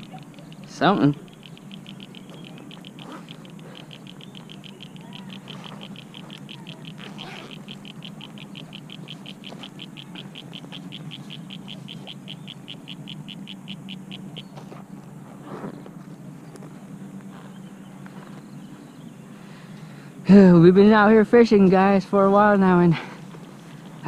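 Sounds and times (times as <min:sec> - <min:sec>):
animal chirping: 0:00.0 - 0:14.7
low steady hum: 0:00.0 - 0:24.0.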